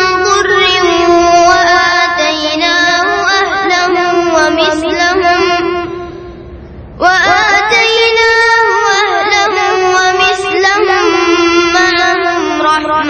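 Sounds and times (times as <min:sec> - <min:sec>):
boy chanting melodically: 0:00.0 - 0:13.0.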